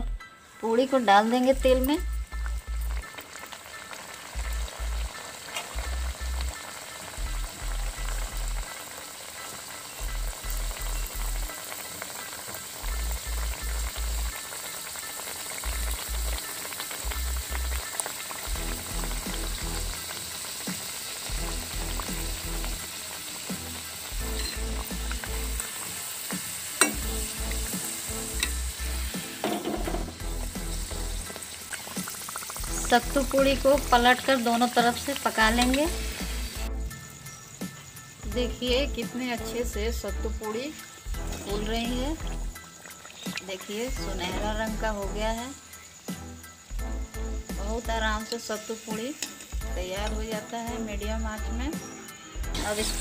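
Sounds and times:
deep-frying sizzle and bubbling: 0.0s - 53.0s
metal ladle clicking on pan: 26.8s - 27.0s, 49.2s - 49.5s.

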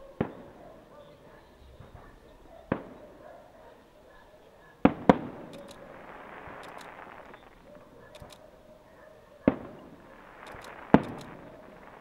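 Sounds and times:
firework shells bursting: 4.9s - 8.4s, 9.5s - 12.0s.

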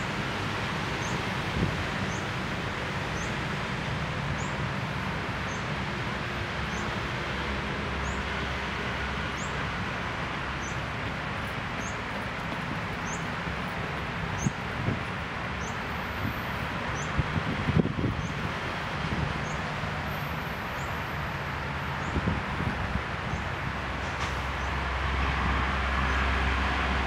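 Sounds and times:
distant city traffic hum: 0.0s - 27.0s.

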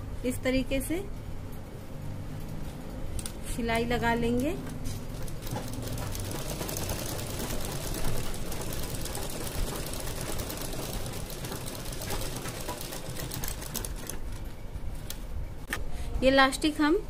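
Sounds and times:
sewing machine running: 5.1s - 14.4s.

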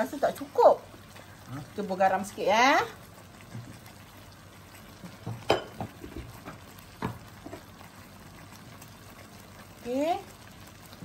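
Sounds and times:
gravy sizzling in a pan: 0.0s - 11.0s
gravy popping and spitting: 5.0s - 7.8s.

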